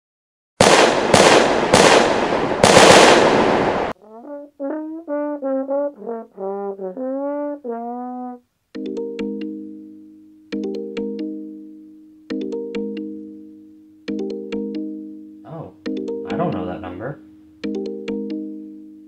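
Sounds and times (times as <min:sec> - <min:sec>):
loud bangs: 0:00.6 - 0:04.0
brass instrument melody: 0:03.9 - 0:08.5, 0:15.5 - 0:17.5.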